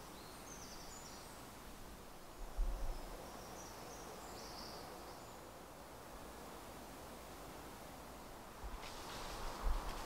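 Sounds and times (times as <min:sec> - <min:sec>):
small bird singing: 0:00.0 - 0:01.4.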